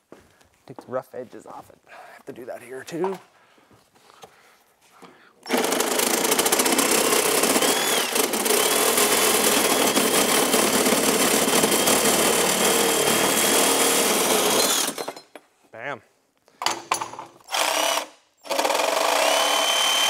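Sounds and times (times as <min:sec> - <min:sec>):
reciprocating saw cutting: 0:05.5 - 0:14.9.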